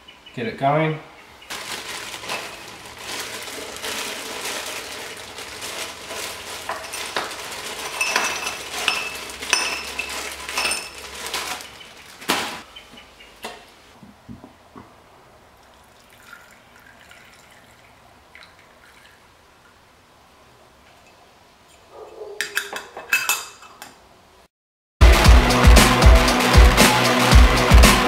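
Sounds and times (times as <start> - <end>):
ice cubes clinking into glass: 1.5 - 11.6
plastic bag rustling: 1.5 - 12.7.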